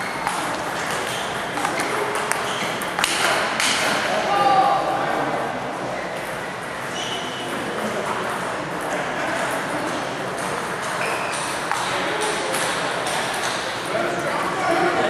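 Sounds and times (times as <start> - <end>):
table tennis balls clicking: 0.0 - 4.0, 7.6 - 13.8
busy hall background noise: 0.0 - 15.0.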